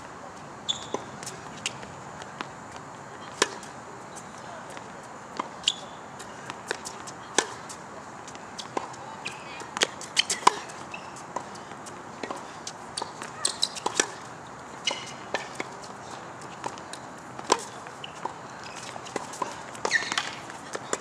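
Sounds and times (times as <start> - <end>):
footsteps and shoe squeaks: 0.6 - 21.0
racket striking tennis ball: 3.3 - 3.7, 4.7 - 7.8, 8.6 - 11.5, 12.2 - 12.4, 13.0 - 15.8, 16.6 - 21.0.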